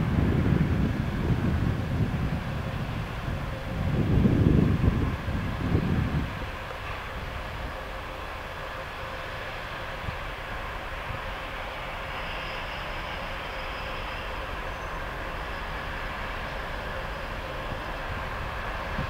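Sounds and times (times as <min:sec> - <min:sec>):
diesel locomotive engine rumble: 0:00.0 - 0:19.0.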